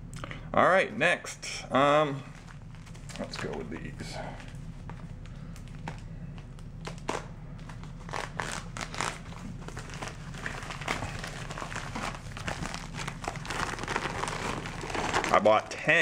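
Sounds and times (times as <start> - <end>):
plastic bag crinkling: 6.8 - 16.0.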